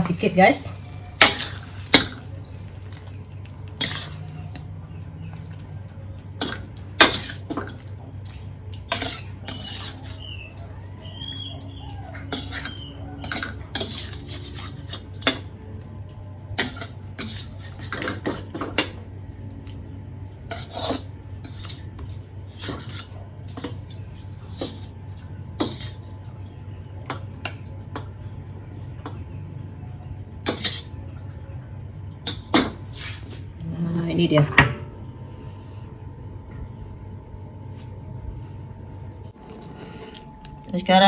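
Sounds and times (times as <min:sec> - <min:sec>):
spatula scraping a wok: 0:08.9 - 0:10.4, 0:12.3 - 0:15.2, 0:16.6 - 0:18.5, 0:20.4 - 0:24.9, 0:25.6 - 0:26.1
low hum: 0:33.4 - 0:41.0.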